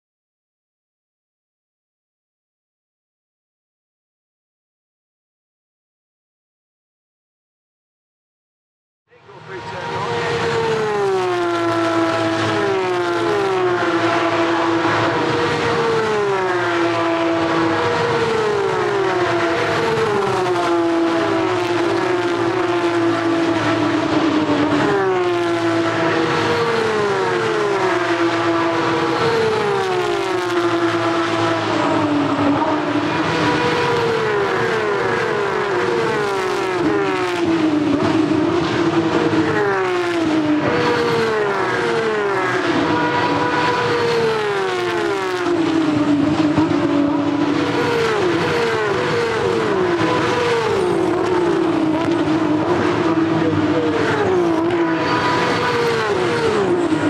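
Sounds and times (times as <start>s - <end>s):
race car engines passing: 9.1s - 57.0s.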